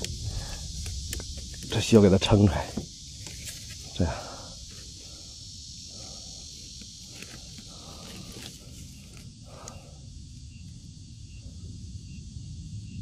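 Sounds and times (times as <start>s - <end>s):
high insect-like hiss: 0.0s - 13.0s.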